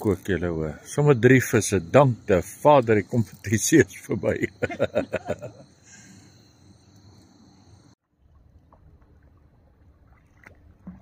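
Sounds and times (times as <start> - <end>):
hiss: 3.2 - 8.0.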